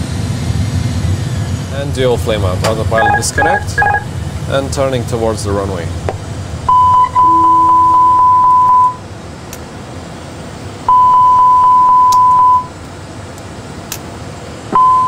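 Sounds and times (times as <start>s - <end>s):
cockpit hum: 1.2s - 9.2s
high warning tone: 2.6s - 4.4s, 6.7s - 9.0s.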